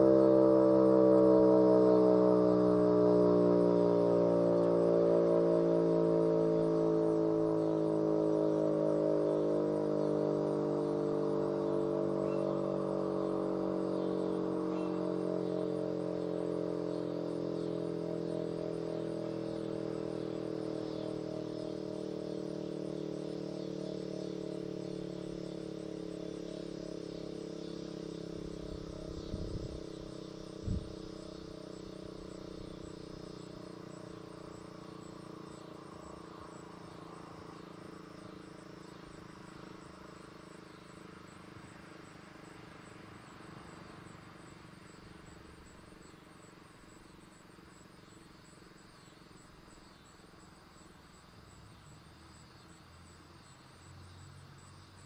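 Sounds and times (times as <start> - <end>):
fire siren winding down: 0.0 - 22.9.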